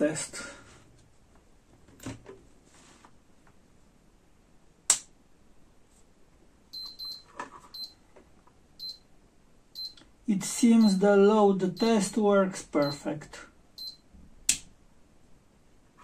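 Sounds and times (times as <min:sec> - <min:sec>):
sharp click: 0:04.9 - 0:05.1, 0:14.5 - 0:14.7
short high-pitched beeps: 0:06.8 - 0:07.2, 0:09.8 - 0:10.0, 0:13.8 - 0:14.0.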